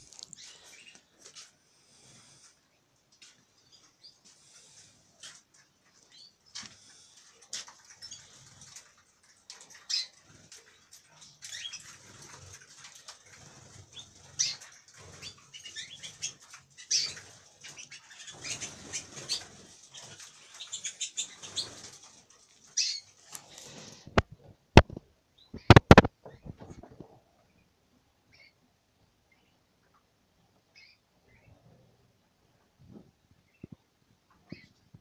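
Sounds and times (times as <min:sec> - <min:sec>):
canaries chirping: 0:00.0 - 0:02.6, 0:03.2 - 0:24.2, 0:24.8 - 0:26.8, 0:28.3 - 0:28.7, 0:30.7 - 0:31.9, 0:33.4 - 0:34.8
wings fluttering: 0:04.5 - 0:25.0, 0:25.6 - 0:27.2.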